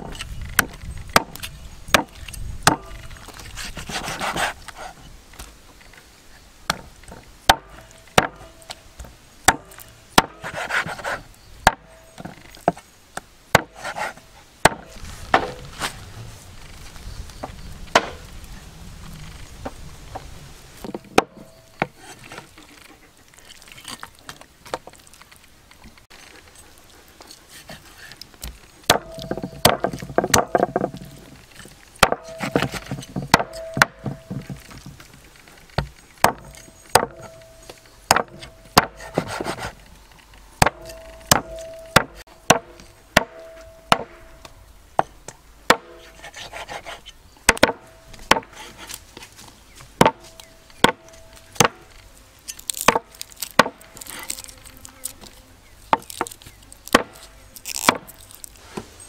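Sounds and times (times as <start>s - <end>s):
blade chopping on wood: 0.0s - 3.0s, 7.5s - 8.7s, 9.5s - 12.8s, 13.6s - 15.6s, 17.9s - 18.3s, 28.4s - 31.2s, 32.0s - 34.9s, 35.8s - 39.8s, 40.6s - 45.1s, 45.7s - 49.0s, 50.0s - 51.9s, 52.7s - 54.4s, 55.9s - 58.2s.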